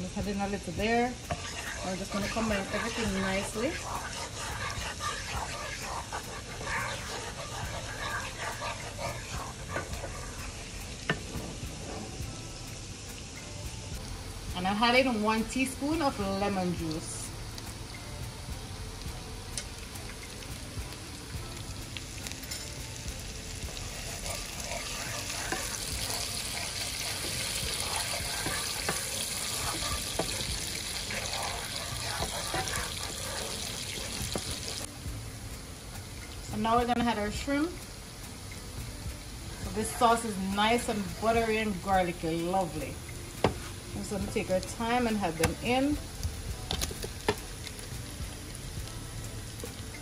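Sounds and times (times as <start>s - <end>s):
butter sizzling in frying pan: 0.0s - 50.0s
wooden spoon stirring: 1.3s - 11.3s, 23.6s - 34.9s
wooden spatula scraping pan: 1.3s - 12.2s, 23.9s - 34.9s.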